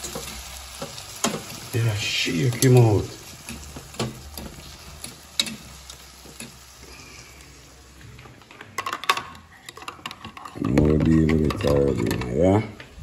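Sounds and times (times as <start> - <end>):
food sizzling in a pan: 0.0 - 8.5.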